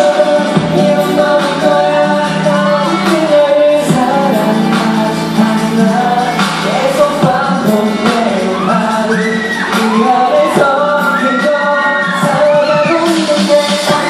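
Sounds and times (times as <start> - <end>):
crowd shouting and screaming: 0.0 - 14.0
man singing live: 0.0 - 14.0
dance track over loudspeakers: 5.8 - 14.0.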